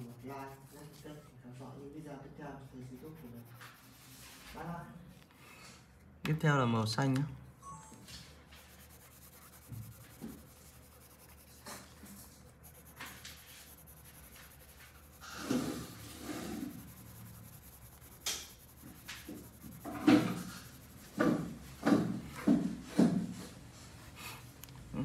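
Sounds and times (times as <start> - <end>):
pencil scratching on paper: 0.0 - 1.7, 2.7 - 4.6, 8.5 - 23.2.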